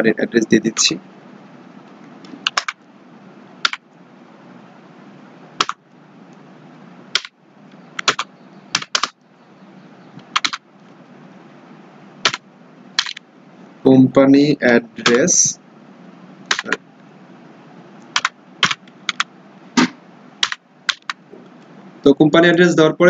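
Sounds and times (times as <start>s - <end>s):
steady low hiss: 0.0s - 23.0s
keyboard keystrokes: 2.2s - 2.8s, 8.0s - 9.2s, 10.2s - 10.6s, 13.0s - 13.2s, 16.5s - 16.8s, 18.1s - 21.2s.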